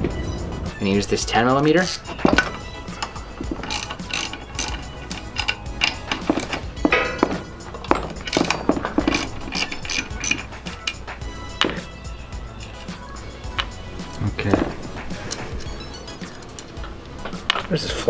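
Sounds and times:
wrench clicking on bolts: 1.8 - 11.9.

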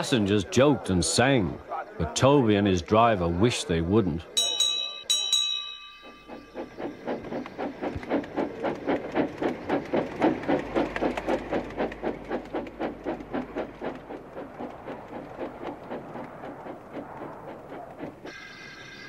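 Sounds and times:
steam engine chuffing: 4.4 - 19.0.

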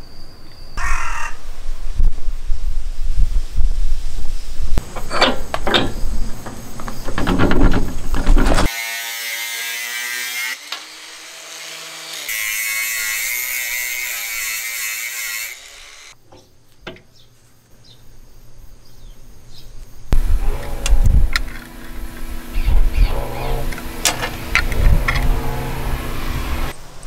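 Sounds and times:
metal bolt clunks: 4.8 - 8.7, 23.1 - 25.7
angle grinder cutting steel: 8.6 - 16.2, 20.4 - 26.8.

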